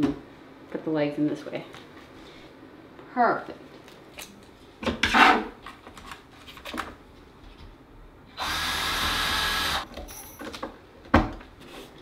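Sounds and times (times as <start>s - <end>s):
cordless drill driving a screw: 8.4s - 9.8s.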